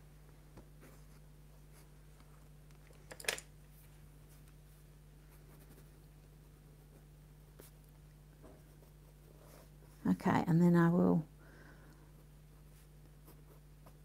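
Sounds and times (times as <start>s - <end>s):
low steady hum: 0.0s - 14.0s
clatter of pencil put down: 3.0s - 3.5s.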